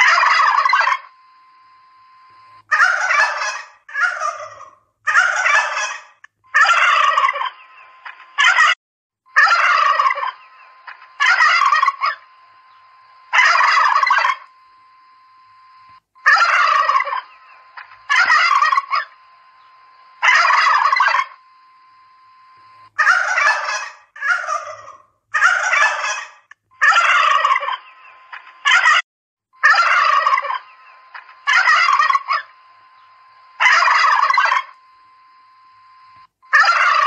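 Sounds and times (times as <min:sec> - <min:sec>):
turkeys gobbling: 0:00.0 - 0:01.1, 0:02.7 - 0:08.8, 0:09.4 - 0:14.5, 0:16.2 - 0:21.4, 0:23.0 - 0:29.0, 0:29.6 - 0:32.6, 0:33.6 - 0:34.8, 0:36.5 - 0:37.0.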